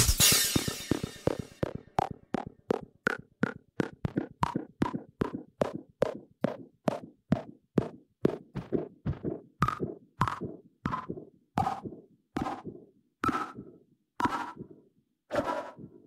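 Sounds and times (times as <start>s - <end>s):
electronic drum machine hits: 0.0s - 5.8s.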